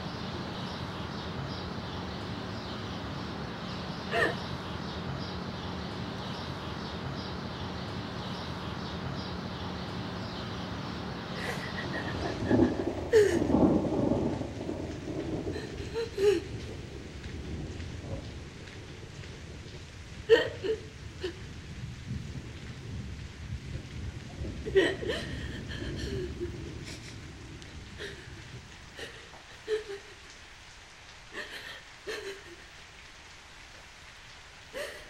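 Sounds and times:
steady rain: 0.0 - 35.0
low rumble: 11.4 - 20.3, 20.9 - 29.4.

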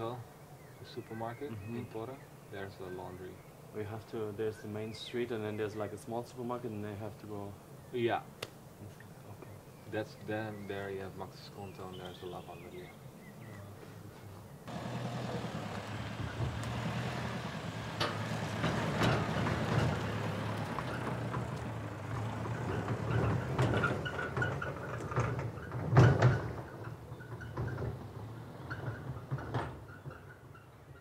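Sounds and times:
vehicle engine running low: 14.7 - 29.6
trailer rattling and clunking: 14.7 - 31.0.

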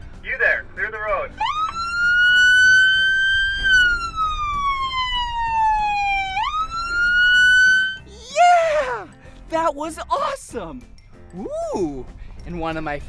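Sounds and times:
police siren wailing: 1.4 - 8.1.

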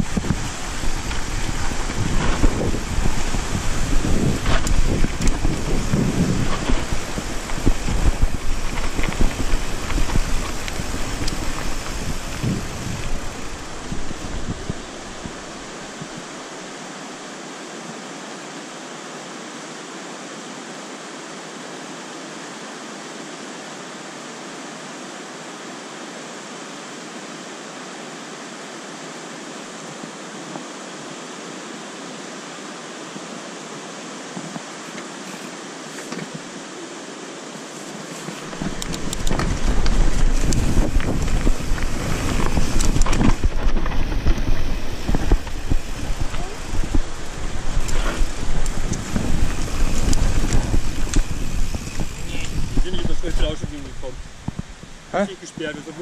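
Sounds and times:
bike clattering over dirt trail: 0.0 - 15.6, 38.2 - 53.6
wind rumble on microphone: 0.0 - 16.3, 38.2 - 55.8
white-water river rushing: 0.0 - 56.0.

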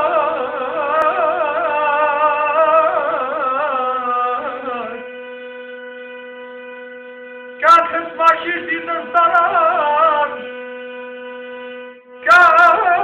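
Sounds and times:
man singing with vibrato: 0.0 - 6.5, 7.4 - 13.0
held drone note: 0.0 - 13.0.

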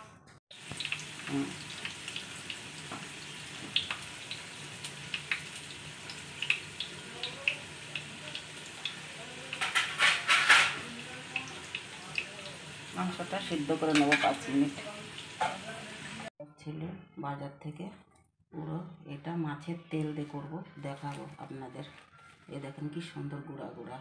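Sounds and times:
chicken sizzling in a pot: 0.5 - 16.3.

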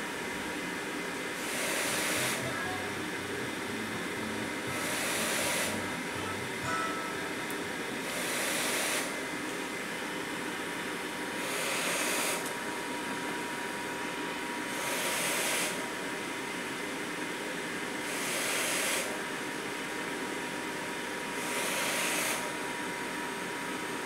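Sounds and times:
ventilator blower hiss and air rush: 0.0 - 24.0
faint high tone: 2.4 - 3.2, 5.7 - 7.8.

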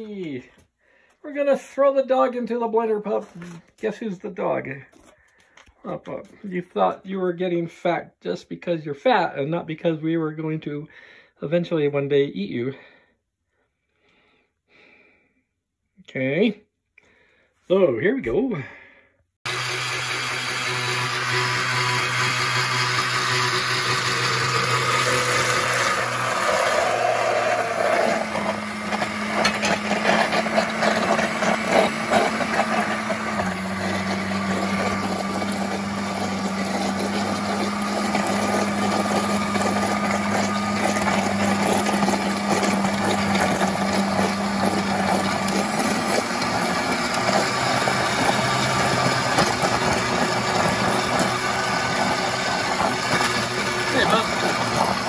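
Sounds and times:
blender motor hum: 19.4 - 55.0
blender clattering: 19.5 - 55.0.

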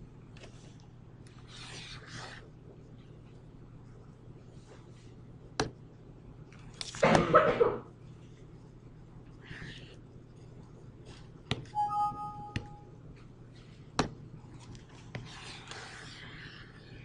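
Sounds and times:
low steady hum: 0.0 - 17.0
two-note tone: 11.8 - 12.9.

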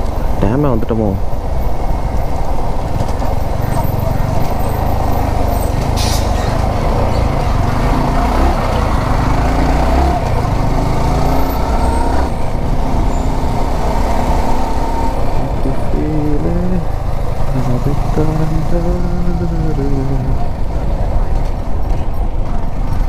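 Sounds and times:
motorcycle engine running: 1.9 - 5.8.

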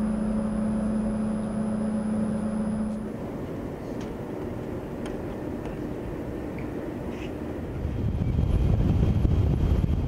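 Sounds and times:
low steady tone: 0.0 - 4.0
machinery hum and rumble: 0.0 - 10.0.

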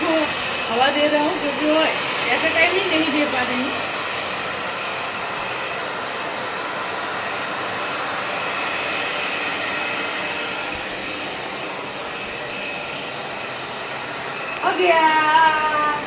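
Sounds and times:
hair dryer blowing: 0.0 - 16.0.

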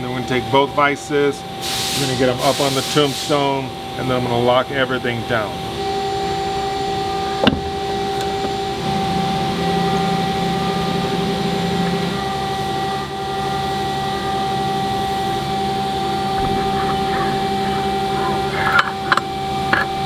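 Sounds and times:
machinery drone: 0.0 - 20.0
low hum: 5.7 - 20.0.

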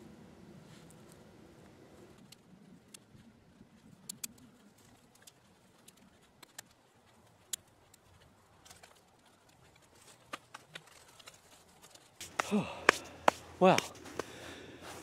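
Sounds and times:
twigs snapping: 3.8 - 14.4.

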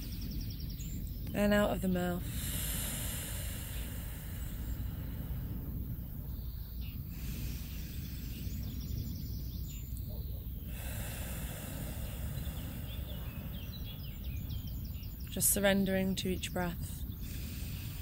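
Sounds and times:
steady low rumble: 0.0 - 18.0
slow deep breathing: 2.2 - 15.6, 16.8 - 18.0.

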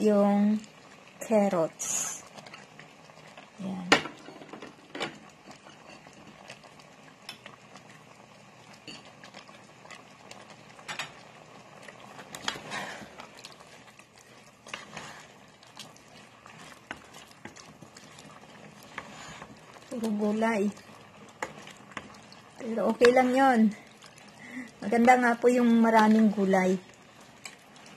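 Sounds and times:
stew bubbling in a pot: 0.0 - 27.9
wooden spoon stirring: 8.7 - 27.9.

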